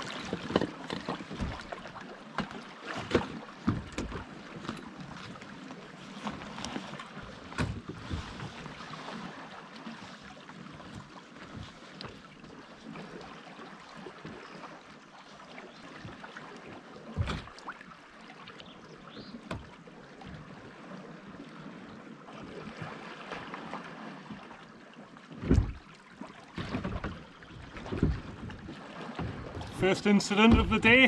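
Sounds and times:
sea waves: 0.0 - 31.0
steady wind: 26.6 - 31.0.

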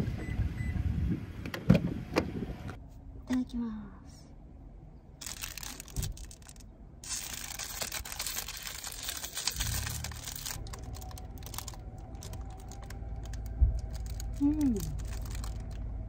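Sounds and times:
plastic wrapper crinkling: 5.2 - 16.0.

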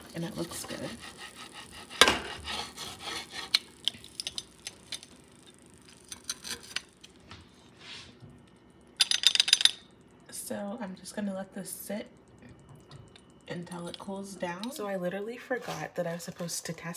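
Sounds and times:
pizza cutter rolling through crust: 0.0 - 8.1, 15.3 - 16.9.

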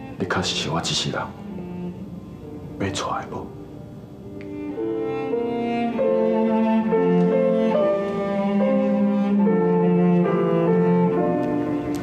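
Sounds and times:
slow instrumental music: 0.0 - 12.0.

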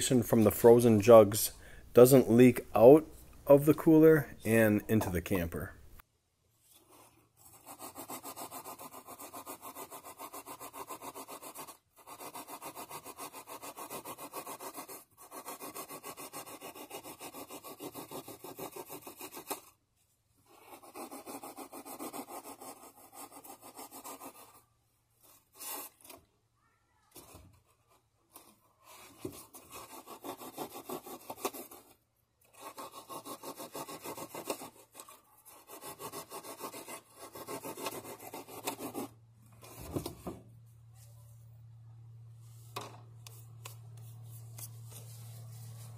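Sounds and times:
knife sawing through styrofoam: 7.4 - 19.8, 20.4 - 26.1, 28.8 - 39.1.

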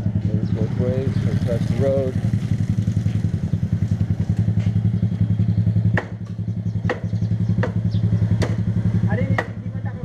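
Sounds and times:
scooter engine idling: 0.0 - 10.0
sharp knocks: 5.9 - 8.7.

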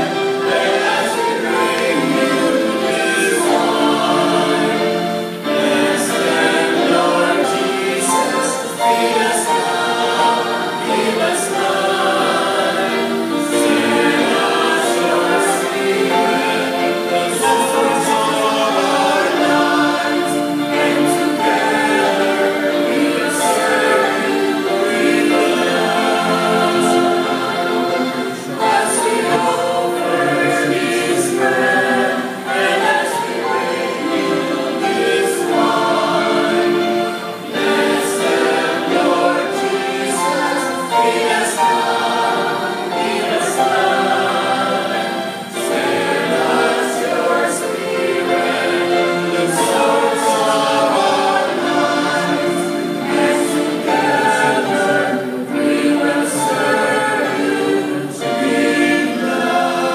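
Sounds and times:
electronic keyboard: 0.0 - 59.9
mixed choir singing a hymn: 0.0 - 59.9.

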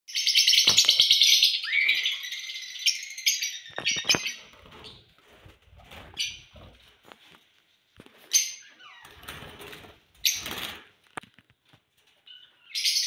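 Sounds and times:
lovebirds chirping: 0.1 - 5.2, 12.2 - 13.0.

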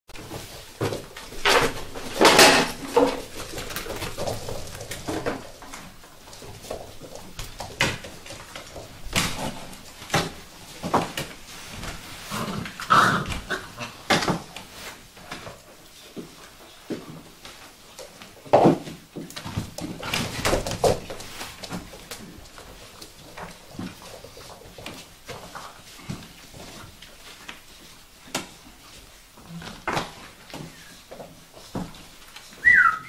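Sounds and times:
puppies whining and yelping: 32.6 - 33.0.

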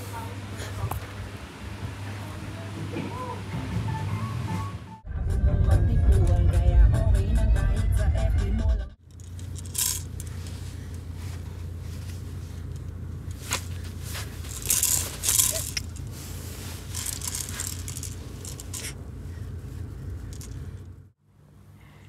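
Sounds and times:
steady low hum: 5.0 - 22.0
small hard objects rattling: 9.0 - 11.2, 11.9 - 19.0, 20.1 - 20.8.

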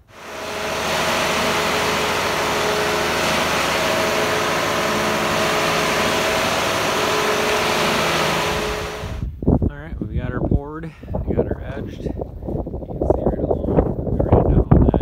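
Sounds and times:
concrete mixer truck engine running: 0.0 - 9.3.

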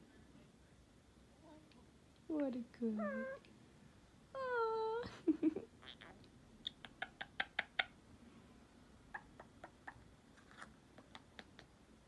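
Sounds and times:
parrot clicking and chirping: 6.6 - 8.0, 11.0 - 11.8.

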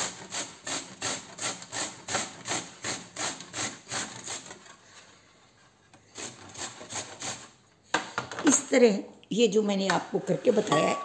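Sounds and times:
radish rasping on a grater: 0.0 - 4.7, 6.1 - 7.6.

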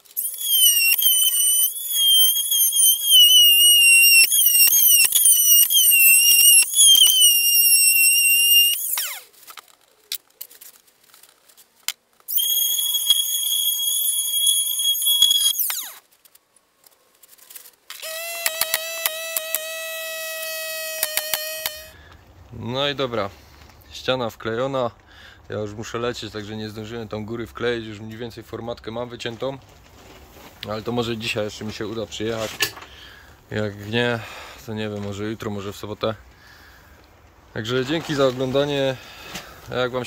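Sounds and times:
power tool whining: 0.0 - 9.3, 12.3 - 16.0, 18.0 - 21.9.

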